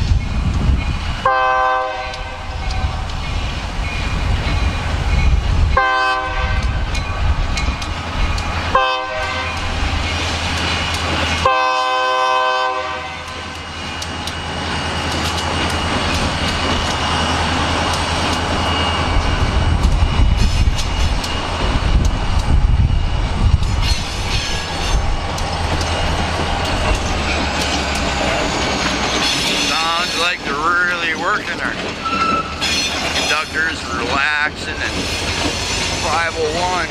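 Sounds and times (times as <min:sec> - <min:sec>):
diesel engines rumbling: 0:00.0 - 0:36.9
freight train rumbling past: 0:00.0 - 0:36.9
locomotive air horn blasts: 0:01.2 - 0:02.5, 0:05.8 - 0:06.8, 0:08.7 - 0:09.6, 0:11.4 - 0:13.4.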